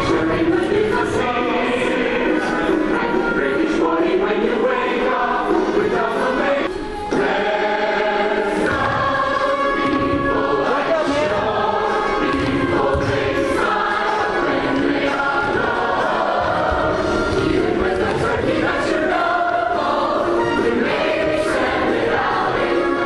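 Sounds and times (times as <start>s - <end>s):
chorus singing with music: 0.0s - 23.0s.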